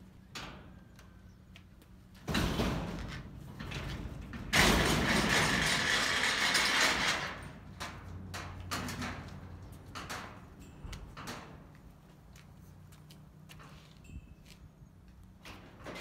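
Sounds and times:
metal door grating open: 2.3 - 10.4
metallic rattle: 2.3 - 11.6.

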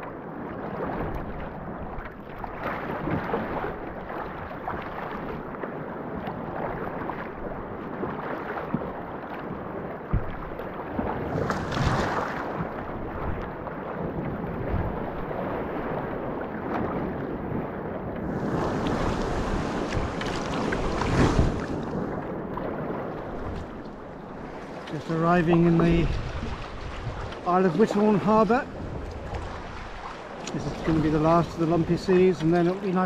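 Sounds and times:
paddle strokes: 0.0 - 33.0
water splashing against hull: 0.0 - 33.0
wind buffeting microphone: 9.5 - 32.4.

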